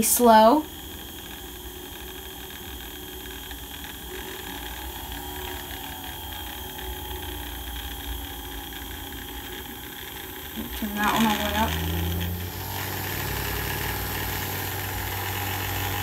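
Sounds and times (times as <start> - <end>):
small electric motors whirring: 0.0 - 16.0.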